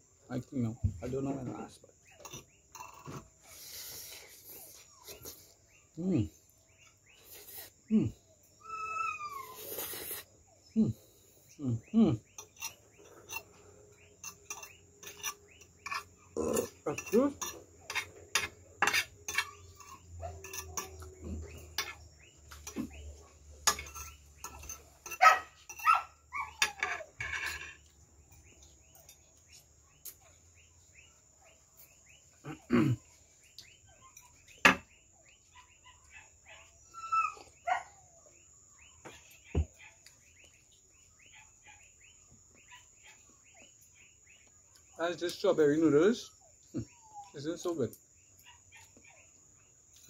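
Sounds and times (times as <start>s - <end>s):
insects chirping: 0.0s - 50.0s
fork scraping a plate: 2.2s - 4.9s, 12.2s - 23.0s, 23.6s - 26.0s.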